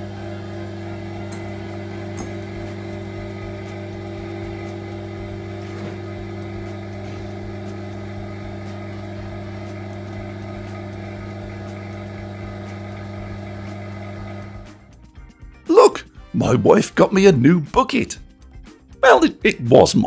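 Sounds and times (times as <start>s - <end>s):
pump electric hum: 0.0s - 15.0s.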